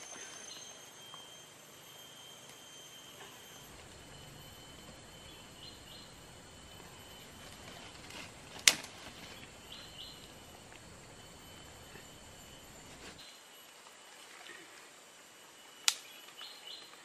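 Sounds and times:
faint steady high tone: 0:00.0 - 0:17.0
sharp snap: 0:15.8 - 0:16.1.

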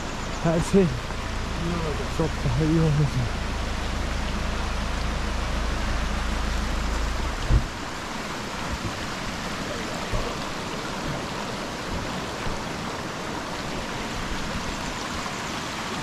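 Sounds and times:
low rumble: 0:00.0 - 0:12.8
stream babbling over stones: 0:00.0 - 0:16.0
sharp thump: 0:07.4 - 0:07.7.

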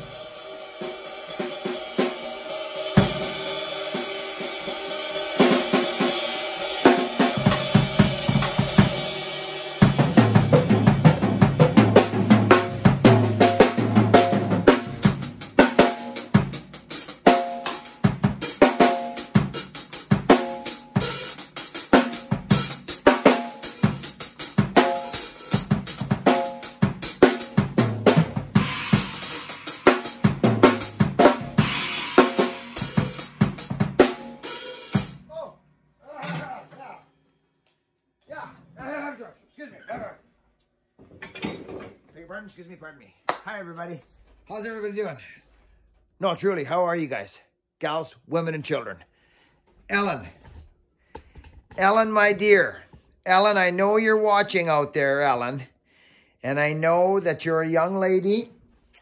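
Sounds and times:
drum kit playing: 0:00.0 - 0:35.4.

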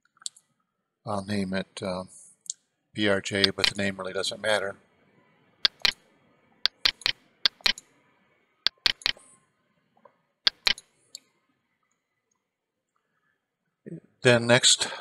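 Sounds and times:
computer keys and mouse clicking: 0:03.4 - 0:03.8, 0:05.6 - 0:06.0, 0:06.7 - 0:07.9, 0:08.7 - 0:09.2, 0:10.5 - 0:10.9.

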